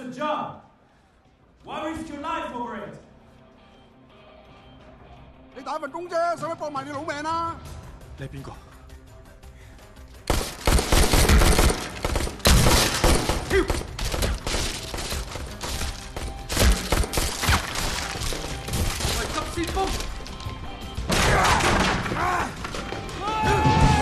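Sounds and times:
dramatic film score music: 0.8 - 24.0
rapid handgun fire: 10.3 - 15.0, 16.1 - 17.8.

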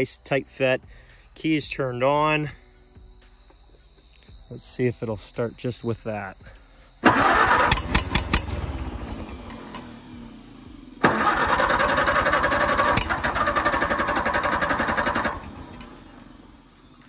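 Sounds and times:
tractor engine cranking: 7.0 - 16.8.

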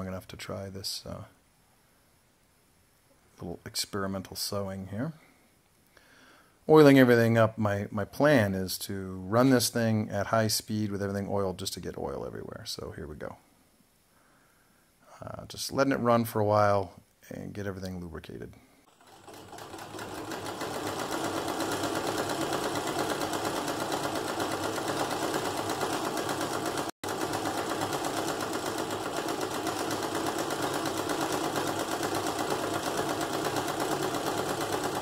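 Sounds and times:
sewing machine clatter: 18.9 - 35.0.

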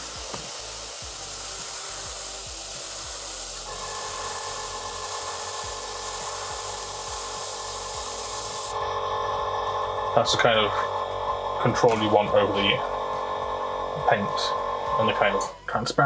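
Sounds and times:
airbrush spraying hiss: 0.0 - 8.8.

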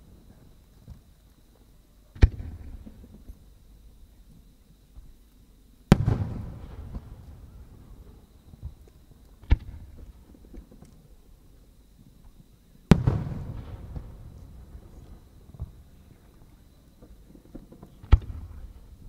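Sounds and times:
firework shells booming: 5.9 - 10.8, 12.9 - 15.9, 17.0 - 19.0.

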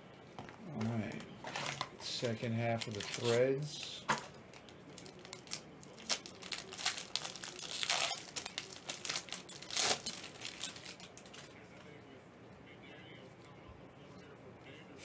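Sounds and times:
plastic wrapping crinkling: 1.0 - 11.6
plastic wrapping tearing: 1.5 - 11.5.

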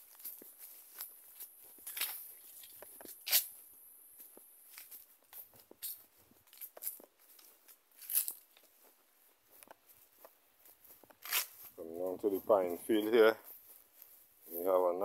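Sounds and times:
footsteps through grass and dry leaves: 0.0 - 15.0.

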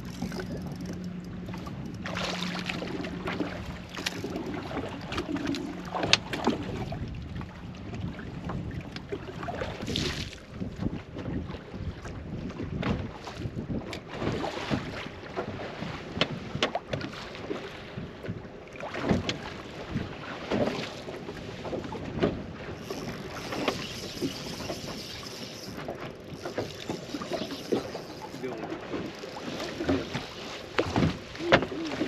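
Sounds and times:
wind buffeting microphone: 0.0 - 15.0
waves slapping boat hull: 0.0 - 32.0.

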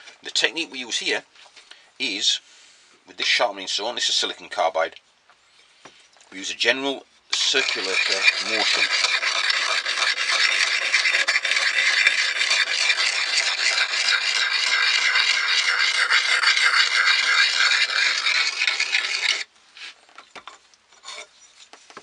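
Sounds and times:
sharpening stone scraping steel: 7.3 - 19.5, 21.0 - 21.4.

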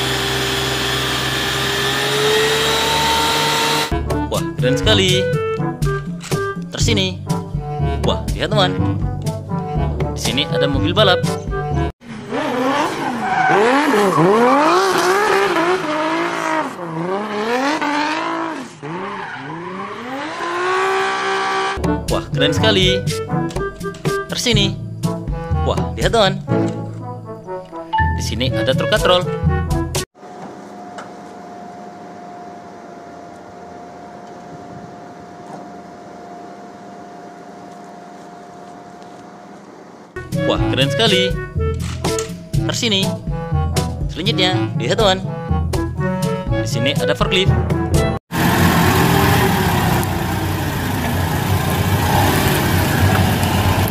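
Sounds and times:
car engine revving: 0.0 - 4.0, 12.0 - 21.9, 48.3 - 53.9
tyres squealing and skidding: 12.0 - 21.8
crane machine hum with whine: 30.2 - 40.2.

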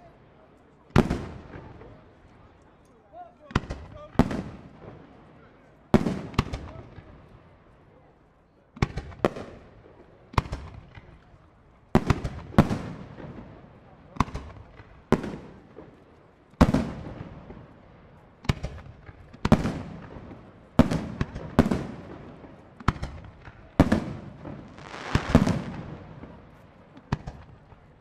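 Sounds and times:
fireworks bursting with echo: 0.9 - 2.5, 3.5 - 7.8, 8.8 - 28.0
fireworks hiss: 24.6 - 26.0.

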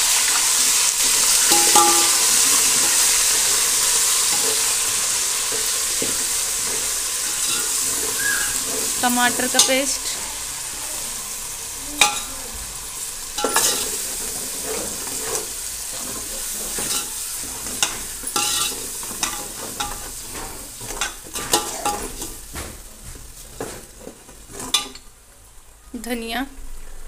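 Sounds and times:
paste sizzling in hot oil: 0.0 - 25.7
ladle scraping and knocking pot: 1.4 - 10.2, 13.4 - 25.1.

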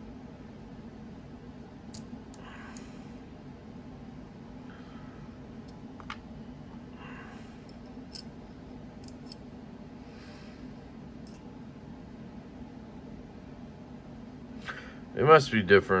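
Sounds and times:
steady low hum: 0.0 - 16.0
small metal parts clicking: 1.9 - 2.9, 7.6 - 8.3, 9.0 - 9.4.

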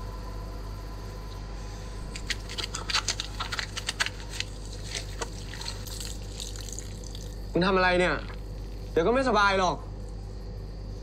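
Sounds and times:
steady low hum: 0.0 - 11.0
water splashing and dripping: 4.8 - 7.4.

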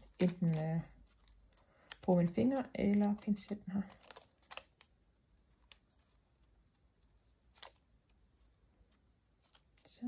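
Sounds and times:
tweezers clicking on paper: 0.0 - 4.9.

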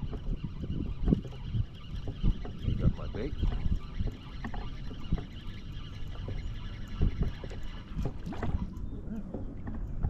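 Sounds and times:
wind blowing on microphone: 0.0 - 5.4
small waves slapping a kayak hull: 0.0 - 10.0.

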